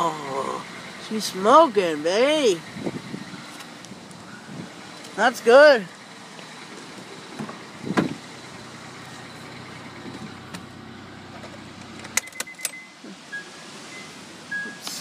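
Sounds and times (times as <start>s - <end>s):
car engine idling: 0.0s - 15.0s
thump: 7.4s - 8.2s.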